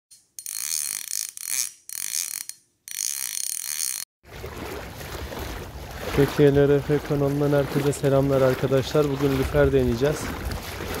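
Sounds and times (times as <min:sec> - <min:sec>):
mechanical ratcheting clicks: 0:00.1 - 0:04.1
wind: 0:00.1 - 0:11.0
water: 0:00.4 - 0:11.0.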